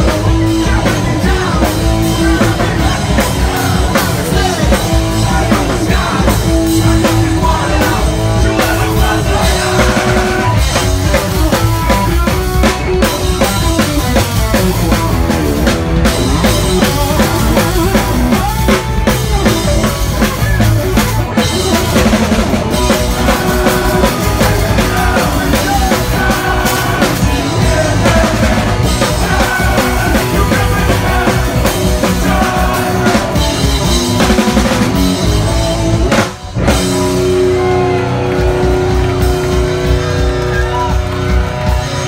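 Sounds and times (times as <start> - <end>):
vocals: 0.0 - 13.8, 21.3 - 35.1
distorted guitars: 0.0 - 42.0
pounding drum kit: 0.0 - 42.0
punk band playing live: 0.0 - 42.0.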